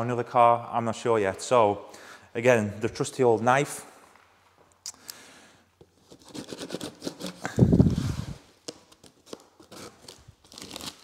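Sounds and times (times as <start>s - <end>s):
knife slicing packing tape: 8.6s - 11.0s.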